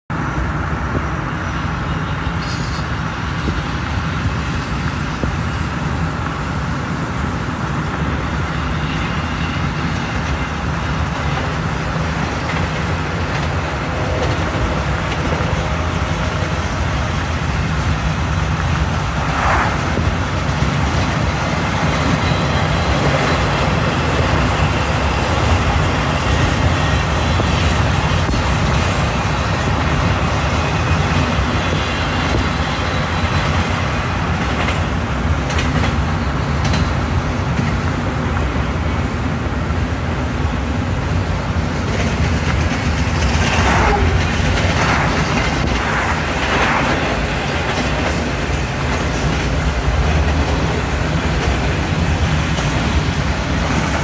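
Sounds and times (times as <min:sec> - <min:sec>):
train rolling on rails: 0:00.1 - 0:54.0
vehicle road noise: 0:00.1 - 0:54.0.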